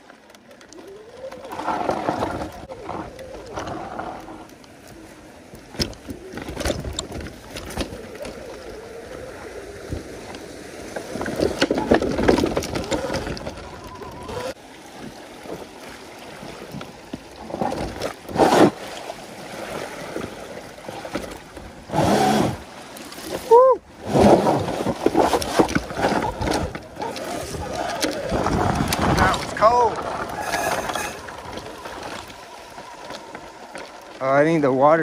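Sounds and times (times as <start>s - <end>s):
tyres rolling over dirt and stones: 0.0s - 15.8s, 23.1s - 35.0s
knocks and rattles on rocks: 5.5s - 8.8s, 9.9s - 14.6s, 24.1s - 35.0s.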